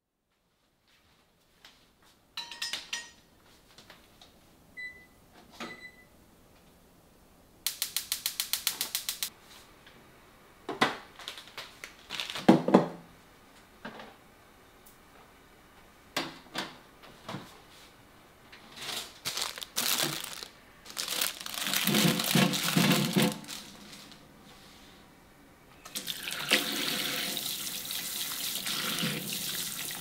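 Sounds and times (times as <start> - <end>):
run of even clicks: 7.7 - 9.3.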